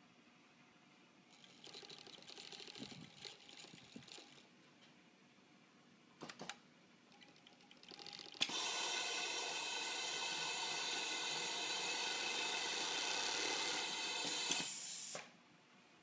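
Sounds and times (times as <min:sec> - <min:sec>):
overlock sewing machine running: 0:01.3 - 0:04.4, 0:07.8 - 0:14.8.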